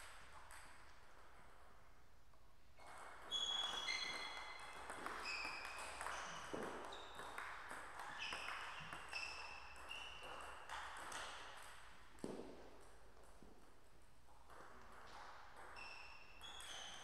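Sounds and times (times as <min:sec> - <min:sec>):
table tennis ball hits: 0:04.3 - 0:17.0.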